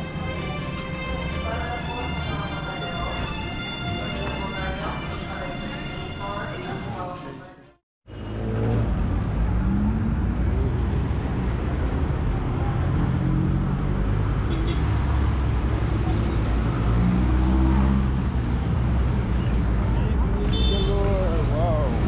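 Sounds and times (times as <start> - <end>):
road traffic noise: 0.0 - 22.0
vehicle engine rumble: 8.1 - 22.0.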